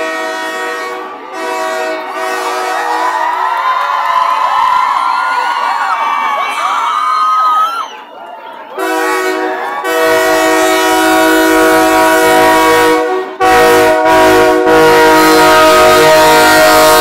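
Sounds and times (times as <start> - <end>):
steam train whistle blasts: 0.0 - 2.8, 8.8 - 17.0.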